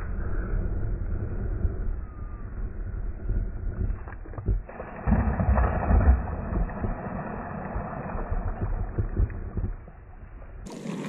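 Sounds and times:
wind rumbling on microphone: 0.0 - 11.0
net splashing into water: 4.7 - 8.5
hiss of spray and churned water: 10.7 - 11.0.

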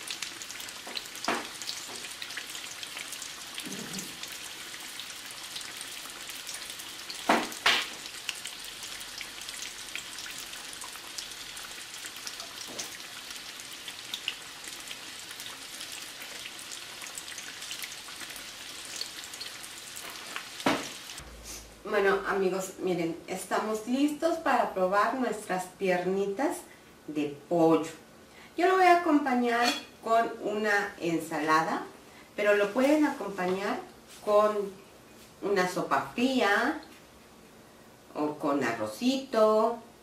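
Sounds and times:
chicken frying in bubbling oil: 0.0 - 21.2.

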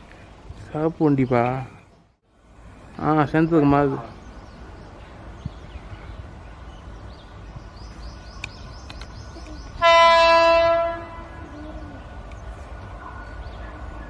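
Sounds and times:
low rumble of train: 0.0 - 14.0
train horn: 9.8 - 11.4.

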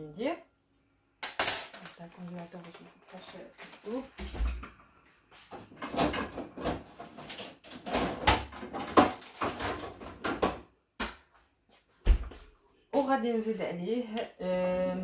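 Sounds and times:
kitchen knocks and clatters: 5.5 - 11.2.

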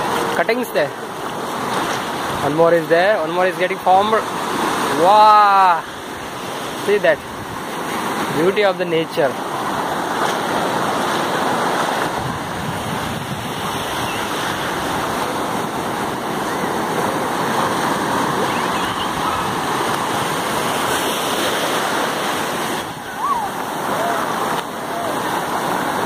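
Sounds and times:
ocean surf breaking on beach: 0.0 - 26.0.

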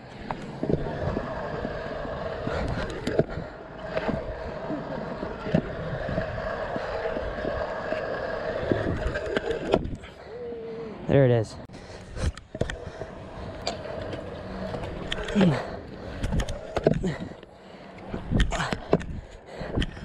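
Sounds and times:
scooter wheels rolling on concrete: 0.0 - 20.0
scooter clacks: 0.1 - 10.0.

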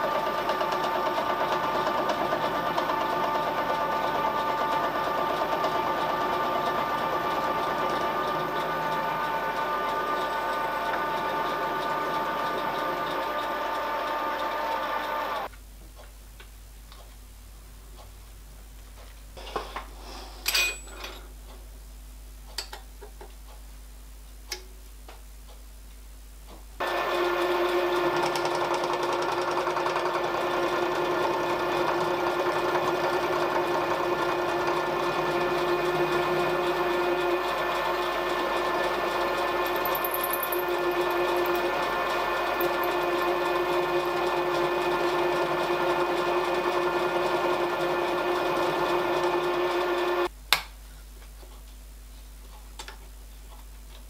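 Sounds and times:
milling machine cutting metal: 0.6 - 15.5, 30.4 - 50.3.

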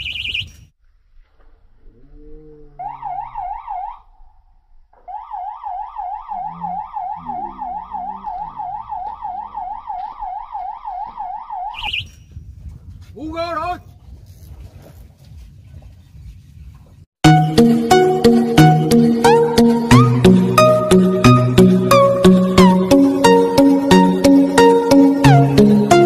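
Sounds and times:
warbling electronic bite alarm: 0.0 - 0.7, 2.8 - 4.4, 5.0 - 12.3
man calling out: 13.2 - 13.9.

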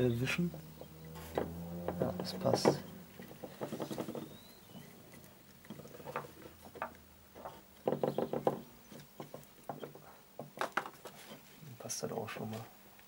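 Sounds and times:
rubber gasket rubbing: 0.6 - 10.1
light knocks and taps: 5.7 - 11.2.

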